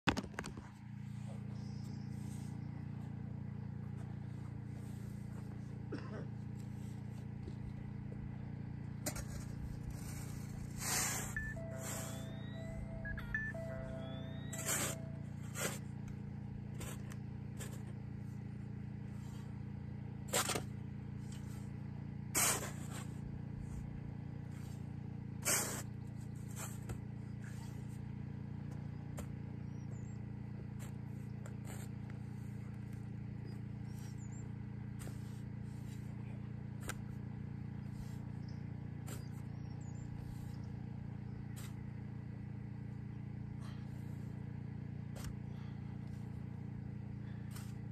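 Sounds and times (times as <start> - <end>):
steady low hum: 0.1 - 47.9
shovel scraping sandy soil: 9.0 - 12.5, 14.3 - 15.9, 16.7 - 18.0, 20.2 - 23.9, 24.5 - 28.0, 30.7 - 37.2, 37.8 - 40.8, 41.4 - 41.9, 45.2 - 45.4, 47.3 - 47.9.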